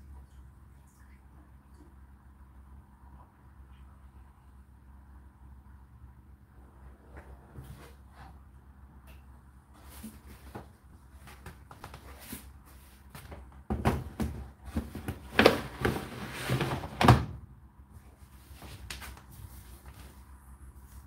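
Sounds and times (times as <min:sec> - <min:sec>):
plastic container knocking and scraping: 0:13.3 - 0:17.3.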